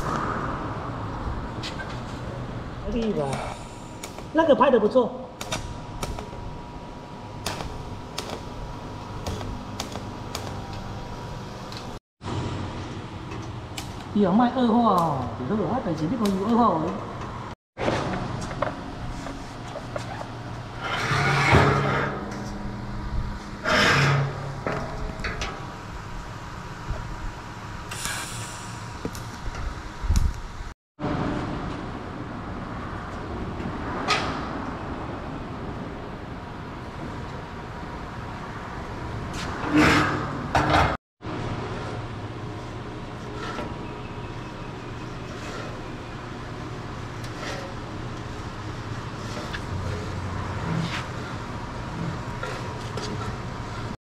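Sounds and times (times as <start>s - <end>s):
steady mechanical hum: 0.0s - 54.0s
welding arc buzzing hiss: 3.3s - 4.4s, 5.4s - 12.0s, 25.6s - 30.7s.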